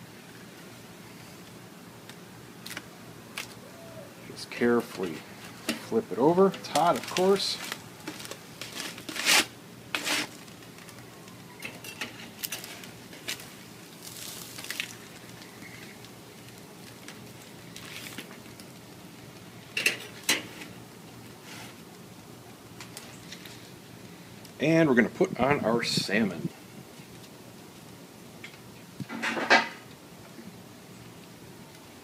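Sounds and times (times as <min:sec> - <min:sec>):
metal spatula scraping grill grate: 0:04.8 - 0:10.4, 0:21.4 - 0:21.8
foil crinkling: 0:04.9 - 0:19.4.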